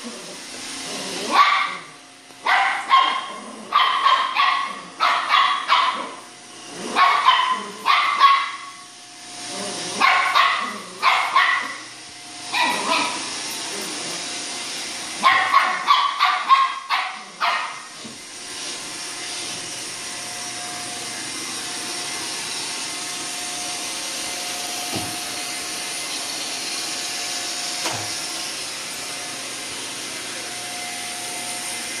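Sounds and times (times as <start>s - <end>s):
puppy barking: 1.3s - 6.2s, 6.9s - 8.8s, 10.0s - 11.9s, 12.5s - 13.3s, 15.2s - 18.0s
robot vacuum whirring: 4.9s - 16.5s, 17.2s - 32.0s.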